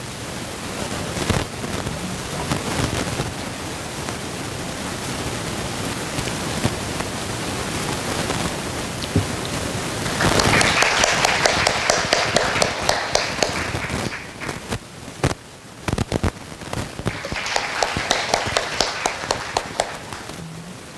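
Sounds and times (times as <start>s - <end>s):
audience applauding: 9.2s - 14.8s, 17.0s - 20.9s.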